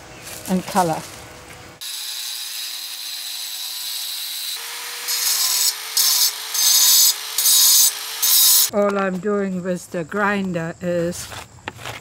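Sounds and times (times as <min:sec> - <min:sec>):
angle grinder whining: 0:01.8 - 0:08.7
grinder cutting stone: 0:01.8 - 0:08.7.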